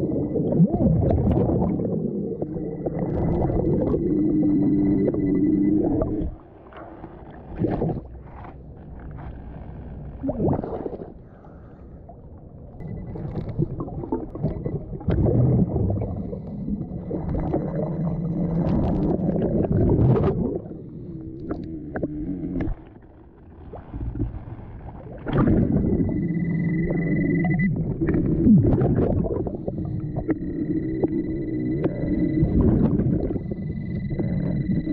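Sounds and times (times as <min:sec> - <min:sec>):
underwater bubbles gurgling: 0:00.0 - 0:09.4, 0:10.0 - 0:34.9.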